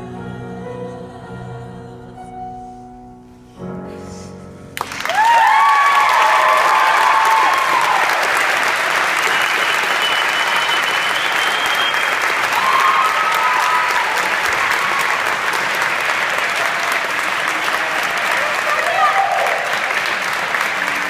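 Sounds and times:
audience applauding: 4.8s - 21.0s.

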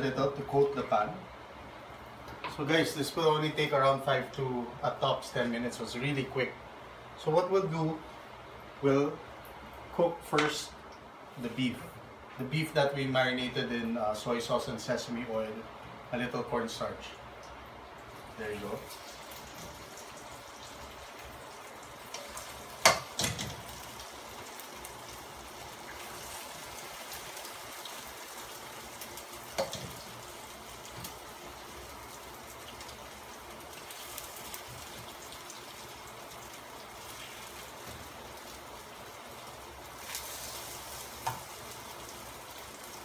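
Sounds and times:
beef sizzling in a wok: 18.4s - 43.0s.

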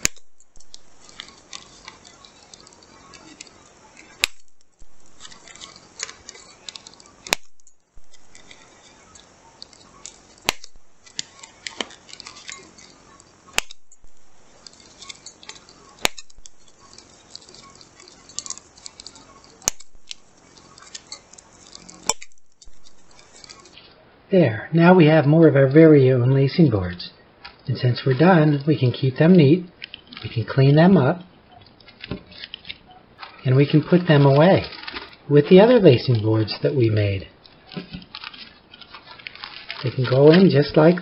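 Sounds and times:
plastic-coated sheet crinkling: 0.0s - 24.0s, 31.4s - 41.0s
paper punch clicking: 13.5s - 13.8s.

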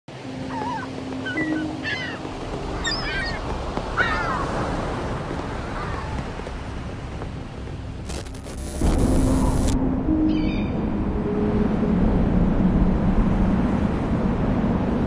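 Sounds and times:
steady wash of noise: 0.1s - 15.0s
bird cries: 0.4s - 4.7s.

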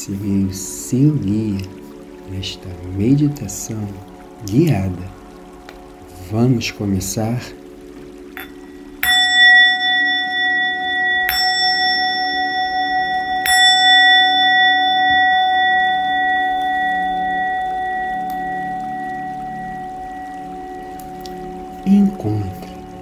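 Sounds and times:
soft music drone: 0.0s - 23.0s
singing bowl ringing: 8.4s - 23.0s.

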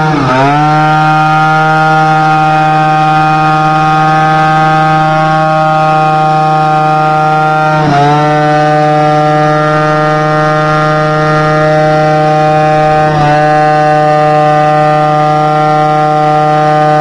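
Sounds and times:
scooter engine at high revs: 0.0s - 17.0s.

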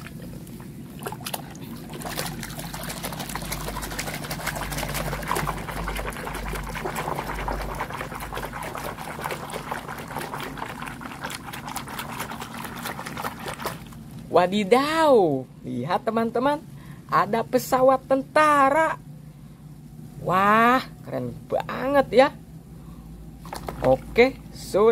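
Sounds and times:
water sloshing in a plastic basin: 0.0s - 14.5s, 23.4s - 24.9s.

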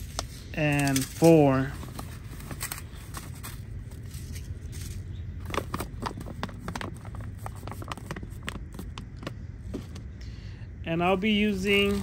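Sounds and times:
plastic pouch crinkling: 0.0s - 9.3s.

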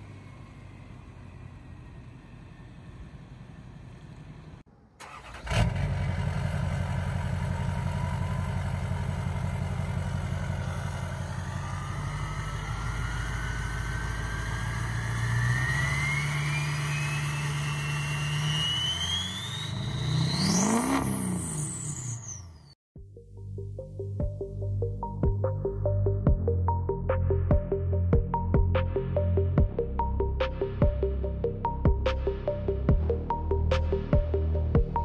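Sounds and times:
diesel engine idling: 0.0s - 15.3s
turbo whistle rising: 11.6s - 22.8s.

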